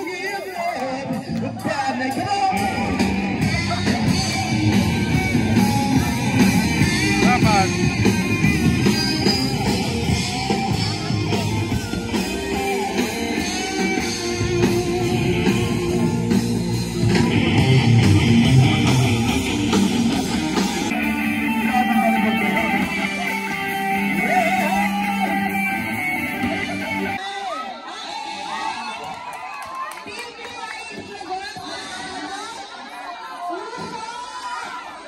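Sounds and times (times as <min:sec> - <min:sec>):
drums: 0:00.0 - 0:27.2
electric guitars: 0:01.1 - 0:27.2
person singing: 0:20.9 - 0:27.2.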